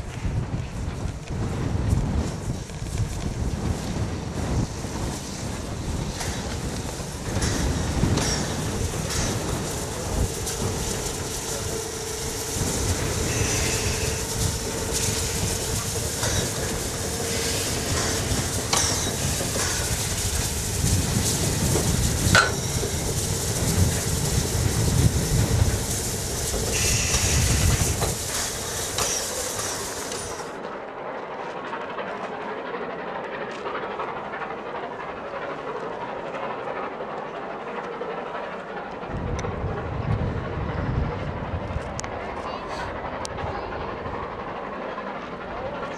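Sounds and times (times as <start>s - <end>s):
steady rushing background: 0.0s - 45.9s
steam hissing: 1.0s - 30.6s
wheels clicking over rail joints: 4.5s - 32.5s.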